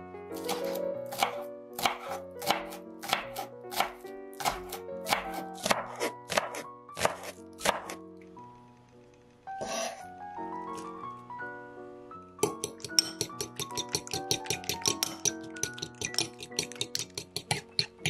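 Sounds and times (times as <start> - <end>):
background music: 0.0 - 18.0
knife chopping on wooden board: 0.4 - 8.0, 12.4 - 18.0.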